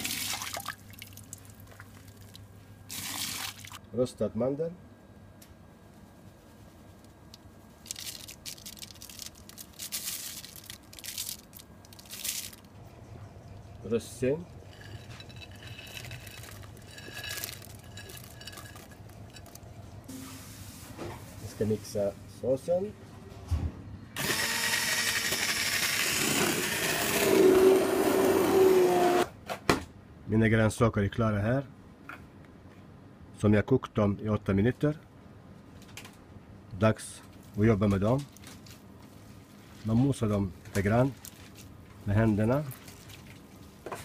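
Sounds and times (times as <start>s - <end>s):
almonds rustling and crackling: 7.7s - 12.7s, 14.7s - 19.8s
stick blender running: 24.2s - 29.3s.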